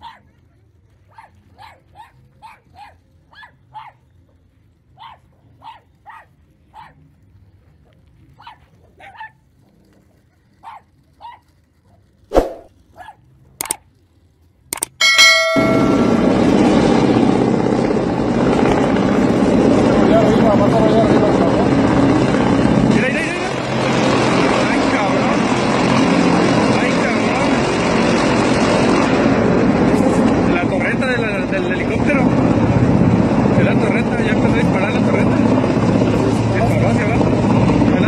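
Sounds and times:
small dogs yapping: 0.0 - 0.4, 1.0 - 4.1, 4.9 - 7.2, 8.3 - 13.8
sharp cracks: 13.6 - 14.0
helicopter noise: 14.8 - 38.0
brief chime: 15.0 - 16.6.

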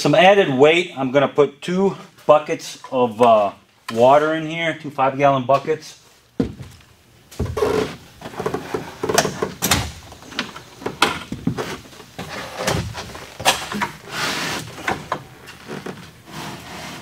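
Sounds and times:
plastic buckets knocking in tub: 6.4 - 6.8.

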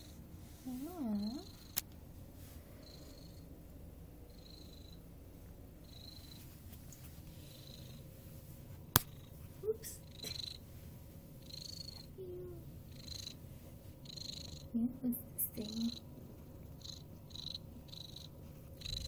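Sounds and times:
cat purring: 0.0 - 19.0.

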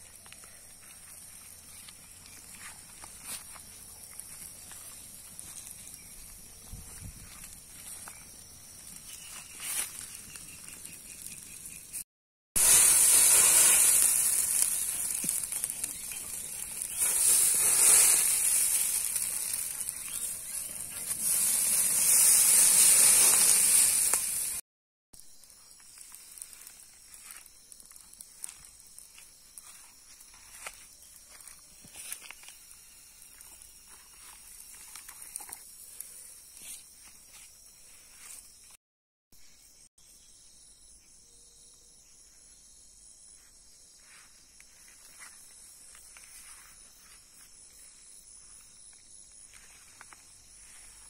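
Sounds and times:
embers hissing and popping: 0.0 - 12.0, 12.6 - 24.6, 25.4 - 38.8, 44.0 - 51.0
wood fire hissing and crackling: 0.0 - 12.0, 12.6 - 24.6, 25.4 - 38.6, 44.0 - 51.0.

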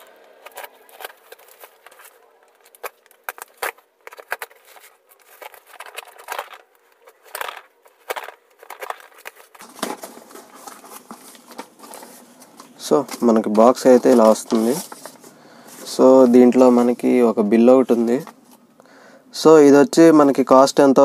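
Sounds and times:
packing tape tearing: 0.0 - 15.2
cardboard box crinkling and tapping: 0.3 - 15.2.

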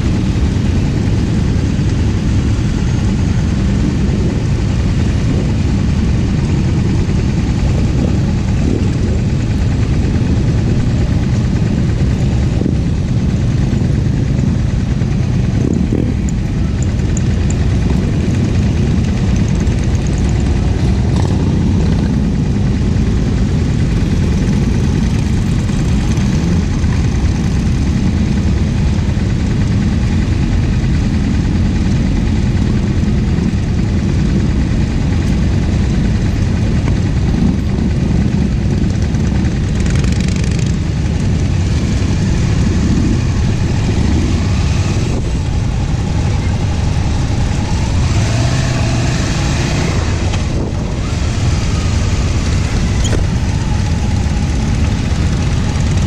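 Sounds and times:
motorcycle idling: 0.0 - 56.0
motorcycles riding past: 34.3 - 56.0.

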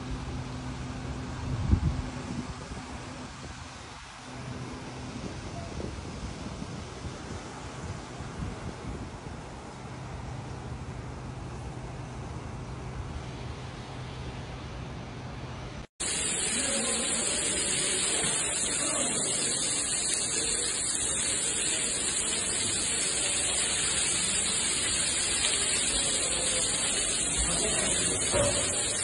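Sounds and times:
rushing water spray: 16.0 - 29.0.

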